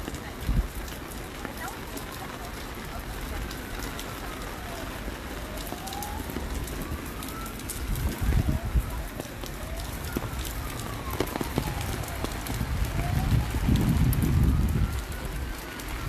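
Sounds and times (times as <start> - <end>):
wind buffeting microphone: 0.0 - 0.9, 5.5 - 16.0
heavy rain: 0.0 - 16.0
raindrops tapping on microphone: 0.0 - 16.0
faint siren: 0.1 - 16.0.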